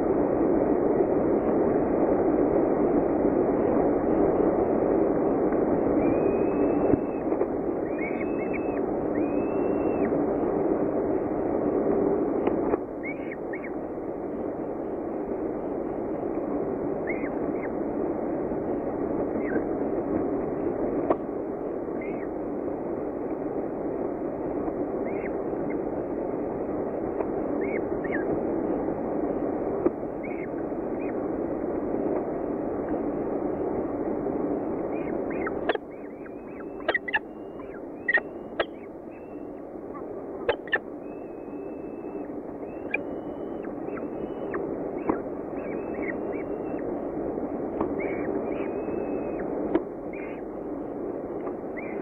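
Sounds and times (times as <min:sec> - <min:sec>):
steady low noise: 0:00.0 - 0:52.0
chicks begging calls and chirps: 0:06.0 - 0:10.1, 0:34.9 - 0:46.8, 0:47.8 - 0:49.5.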